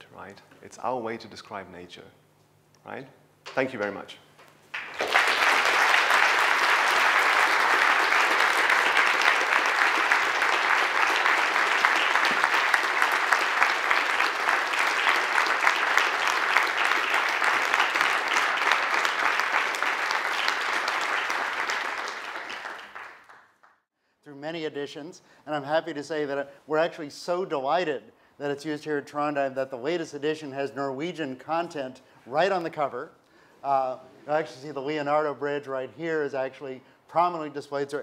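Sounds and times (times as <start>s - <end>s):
audience applauding: 4.7s - 23.8s.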